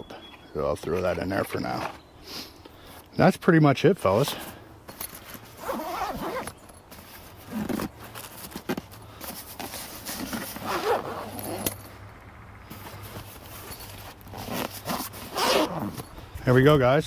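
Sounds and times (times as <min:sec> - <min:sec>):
fabric bag rustling: 0:04.9 - 0:11.7, 0:12.7 - 0:16.1
zipper being pulled: 0:05.4 - 0:06.6, 0:07.3 - 0:11.8, 0:12.7 - 0:16.1.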